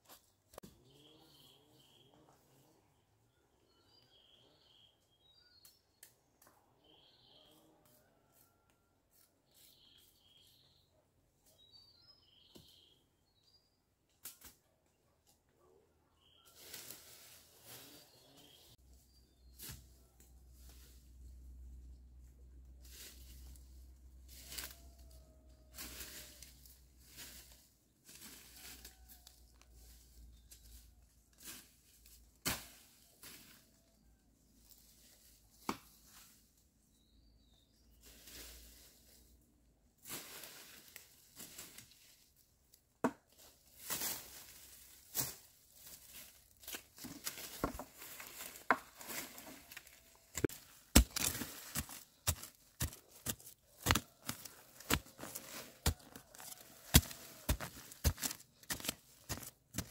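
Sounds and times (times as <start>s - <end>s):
footsteps crunching through dry leaves: 43.6s - 59.9s
hand tool digging into soil: 43.7s - 59.9s
dry twigs snapping: 49.7s - 59.9s.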